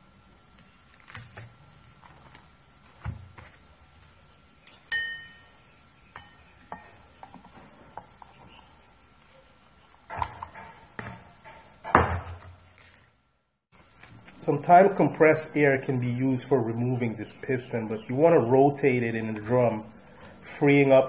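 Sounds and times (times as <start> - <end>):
short metallic ring: 4.9 - 5.6.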